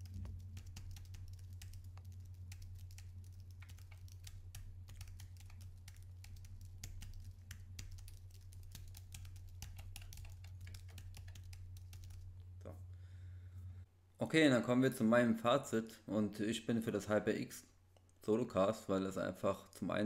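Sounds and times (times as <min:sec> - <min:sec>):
faint keyboard typing: 0:00.0 - 0:12.5
steady low hum: 0:00.0 - 0:14.2.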